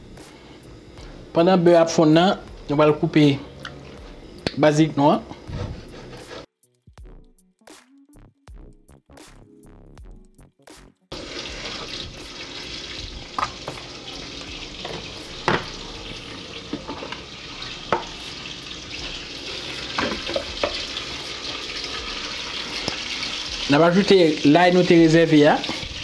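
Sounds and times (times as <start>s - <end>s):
butter sizzling in a pan: 11.1s - 26.0s.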